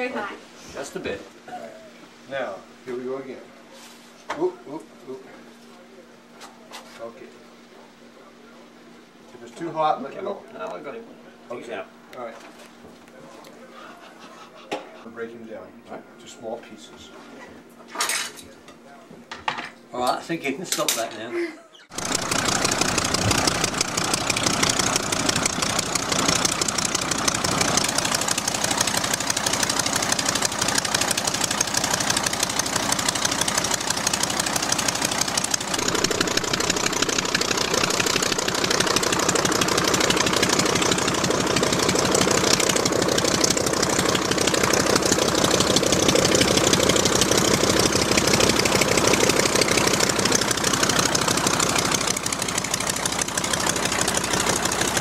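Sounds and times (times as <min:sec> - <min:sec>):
radial aircraft engine running: 0:21.9 - 0:55.0.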